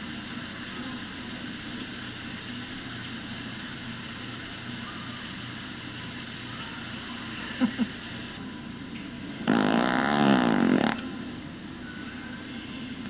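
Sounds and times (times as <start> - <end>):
fart sound machine: 9.4 - 11.2.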